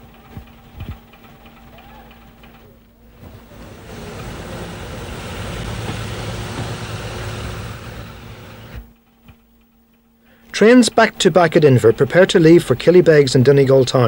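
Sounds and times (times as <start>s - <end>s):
diesel railcar engine drone: 0.0s - 8.9s.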